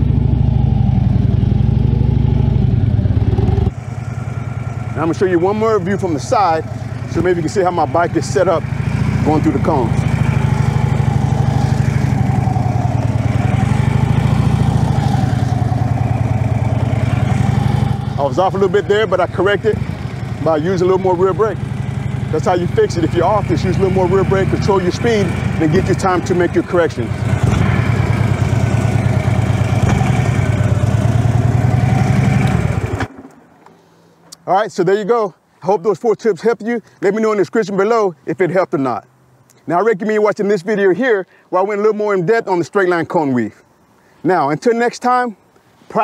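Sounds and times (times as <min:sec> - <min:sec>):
motorcycle engine at low revs: 0:00.0 - 0:33.8.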